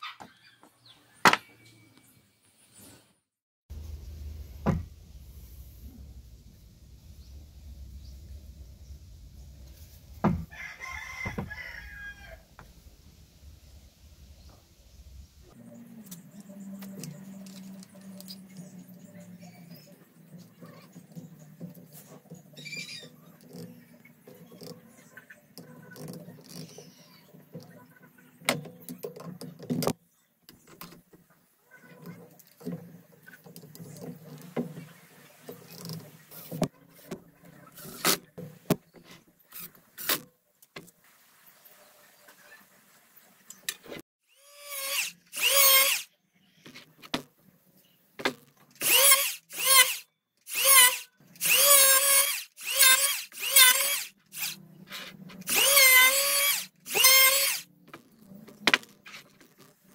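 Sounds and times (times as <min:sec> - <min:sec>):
power drill motor whine: 0:44.3 - 0:46.1, 0:48.8 - 0:54.6, 0:55.5 - 0:57.7.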